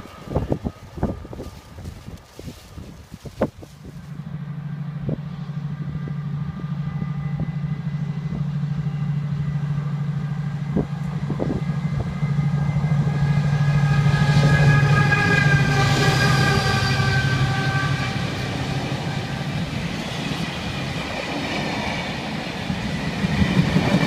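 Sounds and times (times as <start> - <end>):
diesel locomotive engine drone: 0.0 - 24.0.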